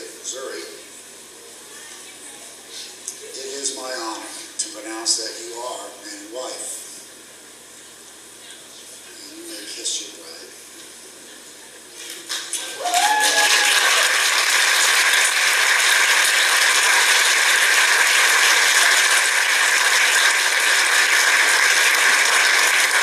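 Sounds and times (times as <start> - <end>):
guests applauding: 12.0 - 23.0
voiced cheer: 12.5 - 14.8.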